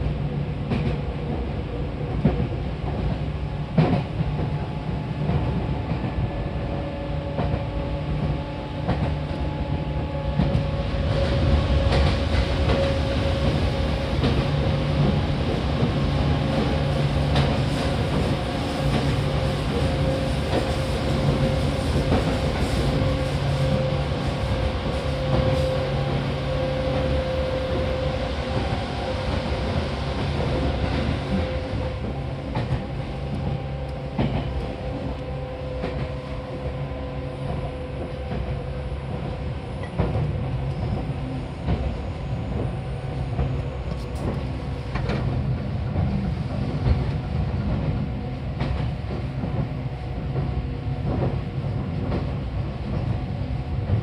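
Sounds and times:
electric train rumble and hum: 0.0s - 54.0s.

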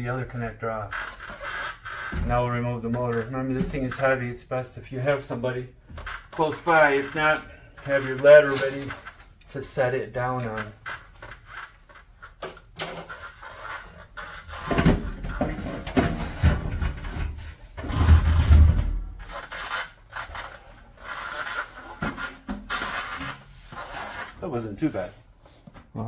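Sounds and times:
sheet metal scraping and knocking: 10.4s - 24.4s.

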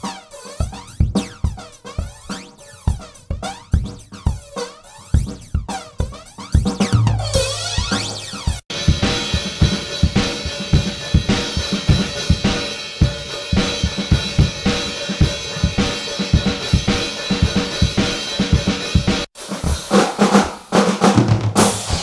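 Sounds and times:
cymbal wash: 7.0s - 19.2s.

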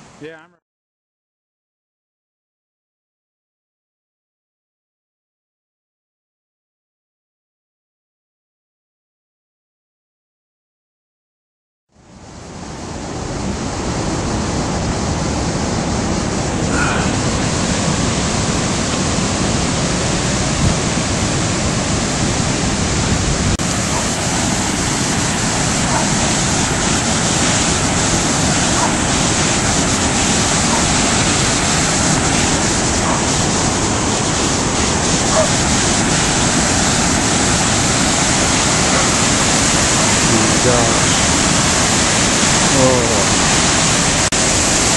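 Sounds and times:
river rushing: 12.1s - 44.9s.

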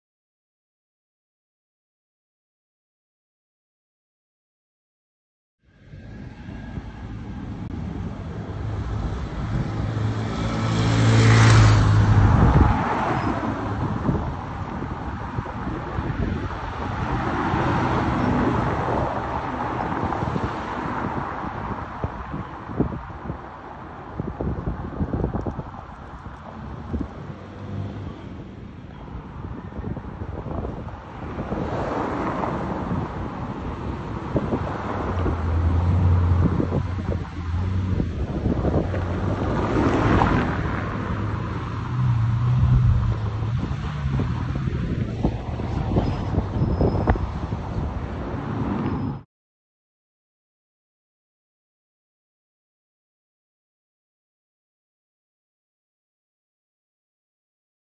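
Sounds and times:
tyre and road noise: 5.6s - 49.3s
car passing: 5.7s - 49.2s
wind on microphone: 5.8s - 49.2s
motorcycle passing: 8.2s - 13.3s
car engine driving past: 8.6s - 13.8s.

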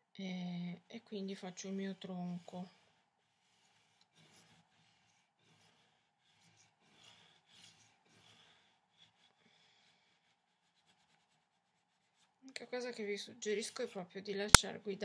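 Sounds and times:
pencil scratching on paper: 3.4s - 9.3s.

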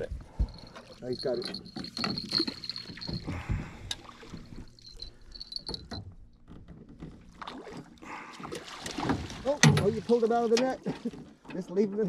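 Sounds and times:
gear knocking against boat: 0.3s - 7.5s
fish splashing at the surface: 7.5s - 10.0s.

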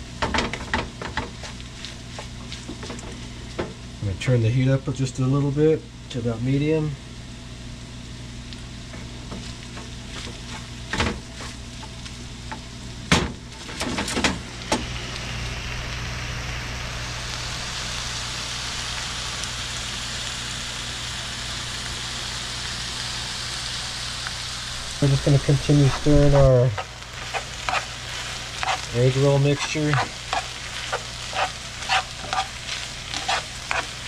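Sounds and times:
food sizzling in a frying pan: 0.0s - 4.7s, 7.6s - 34.0s.

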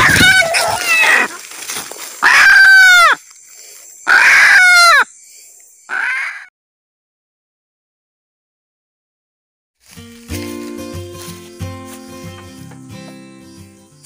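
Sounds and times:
rooster squawking calls: 2.2s - 3.2s, 4.1s - 5.1s, 5.9s - 6.5s.

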